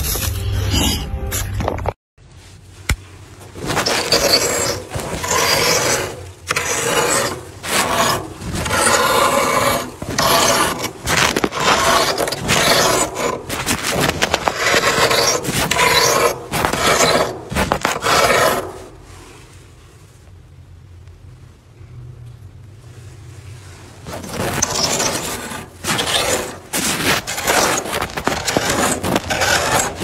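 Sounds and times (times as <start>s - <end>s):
crunchy scraping of freezer frost: 2.8s - 19.6s, 23.7s - 30.0s.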